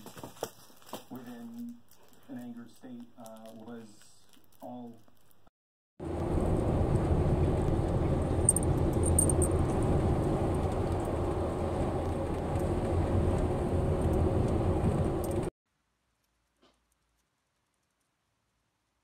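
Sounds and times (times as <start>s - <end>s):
wind and road noise in car: 6.0s - 15.5s.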